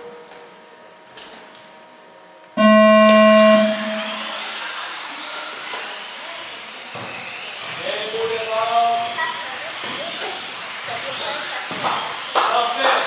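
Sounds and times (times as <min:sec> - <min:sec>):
electronic start tone: 0:02.6 - 0:04.4
electric motors whining: 0:02.6 - 0:05.9.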